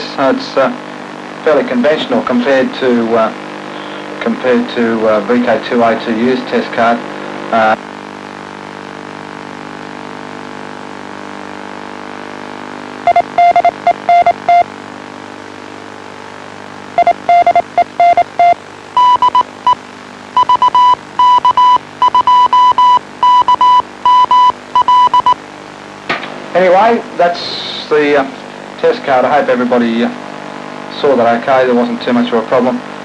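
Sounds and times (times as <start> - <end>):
low buzzing hum: 0.0 - 33.0
morse code tone: 13.0 - 14.7, 17.0 - 19.8, 20.4 - 25.4.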